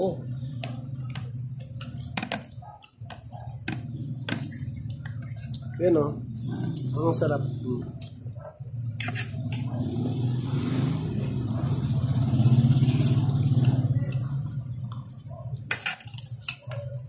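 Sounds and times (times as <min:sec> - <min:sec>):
vehicle engine passing by: 0:06.0 - 0:07.9, 0:09.4 - 0:15.0.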